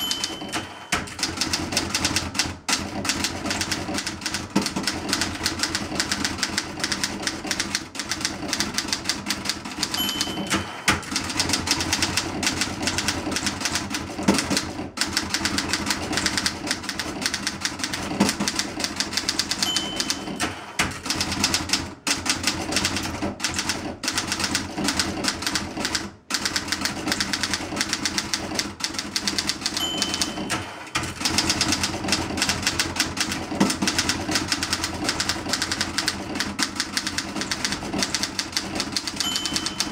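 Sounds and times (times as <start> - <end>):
typewriter bell ding: 0.0 - 1.6, 8.8 - 12.2, 18.8 - 21.5, 29.1 - 31.8, 37.1 - 39.9
typewriter keys clattering: 0.0 - 39.9.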